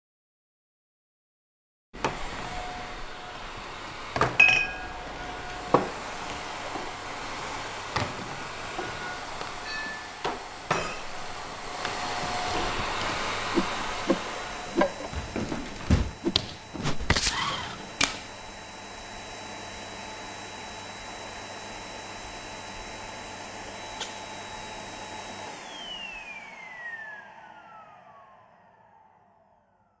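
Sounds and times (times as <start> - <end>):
electric motor whining: 11.2 - 19.4.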